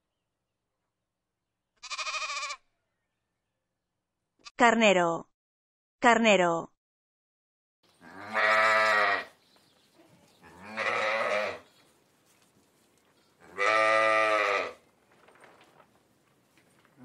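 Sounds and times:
ram bleating: 1.8s - 2.7s, 8.0s - 9.4s, 10.4s - 11.6s, 13.4s - 14.8s.

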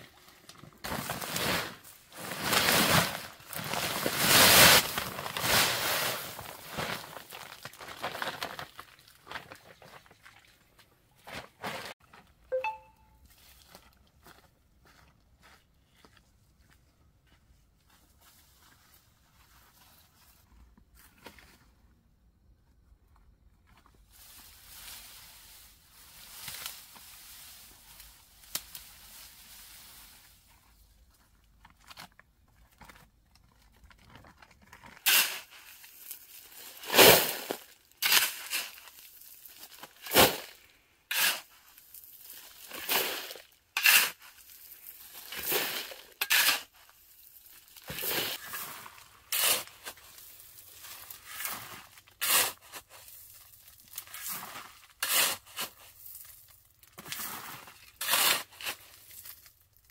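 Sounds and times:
shovel crunching into sand and gravel: 0.8s - 8.6s, 34.9s - 59.5s
digging tool scraping gravel: 0.8s - 8.7s, 34.2s - 59.6s.

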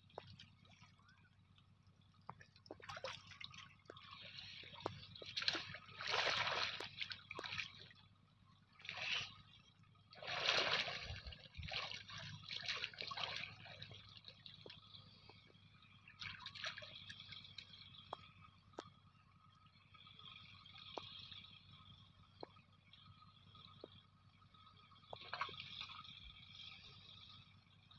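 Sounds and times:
water drips: 0.0s - 8.0s, 10.2s - 18.9s
pond water sloshing and splashing: 0.0s - 19.0s, 25.0s - 27.8s.

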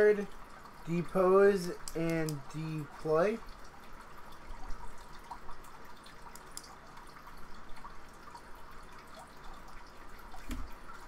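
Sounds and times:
trading cards clicking and rustling: 1.6s - 2.4s.

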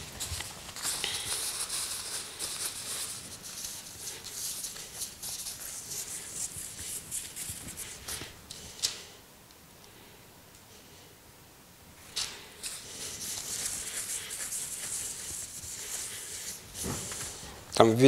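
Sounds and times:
paper towel rubbing on metal lid: 0.0s - 8.1s, 12.6s - 17.5s.

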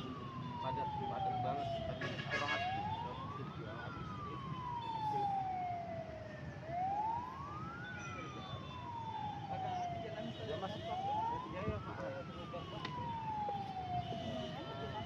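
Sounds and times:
emergency siren wailing: 0.0s - 15.0s.

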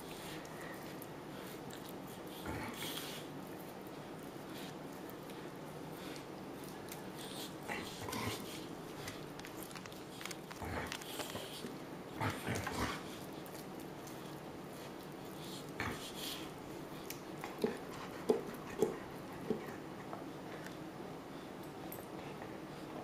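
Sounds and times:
dog licking and gnawing toy: 0.0s - 20.8s
dog snorting and grunting: 2.4s - 3.3s, 7.2s - 9.2s, 10.5s - 13.3s.

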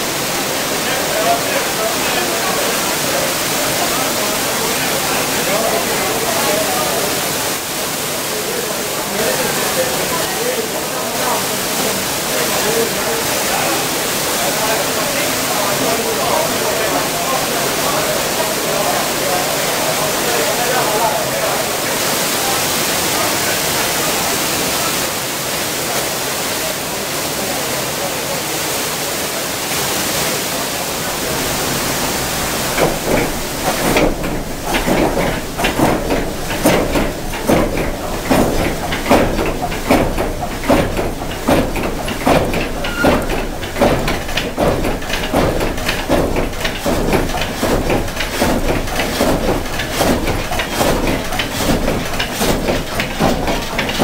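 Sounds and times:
water rushing: 0.0s - 54.0s
frame saw cutting a log: 32.2s - 54.0s.

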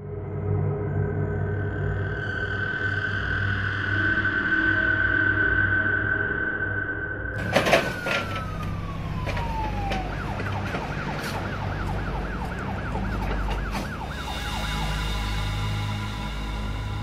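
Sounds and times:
emergency vehicle siren: 7.4s - 17.0s
low vehicle rumble: 7.4s - 17.0s.

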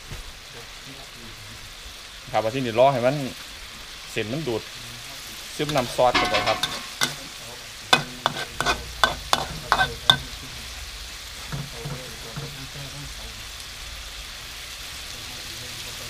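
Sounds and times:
noodles sizzling: 0.0s - 16.0s
metal spatula clanking on wok: 5.7s - 7.4s, 8.0s - 10.5s, 11.4s - 12.7s.

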